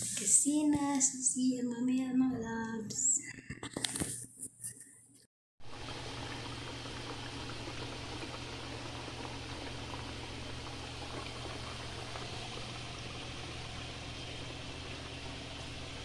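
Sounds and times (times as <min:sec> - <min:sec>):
food deep-frying in hot oil: 0:05.6 - 0:16.0
low steady hum: 0:05.7 - 0:16.0.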